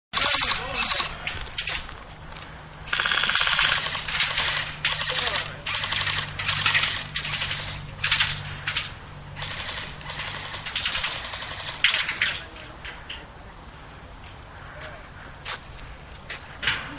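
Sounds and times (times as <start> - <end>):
airsoft rifles firing full-auto: 0.2 - 1.8, 2.9 - 12.4.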